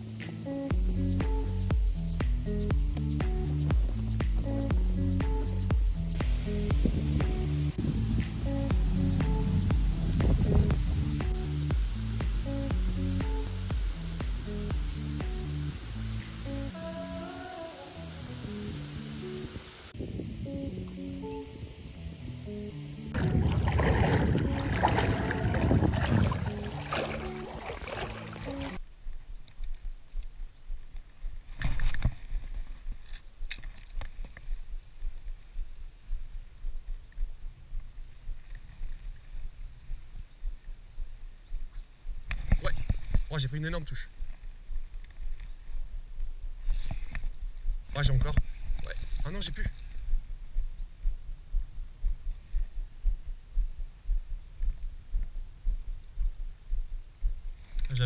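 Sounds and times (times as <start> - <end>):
background music: 0.0 - 28.8
low regular thumping: 0.7 - 15.5, 23.2 - 43.4, 44.1 - 57.6
splashing water: 23.2 - 28.8.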